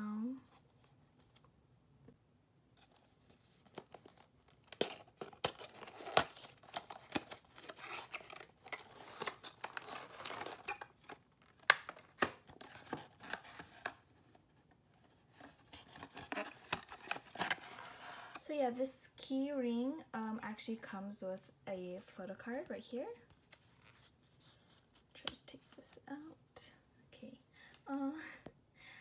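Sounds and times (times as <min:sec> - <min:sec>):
plastic packaging rustling: 0:02.8 - 0:14.1, 0:15.3 - 0:18.5.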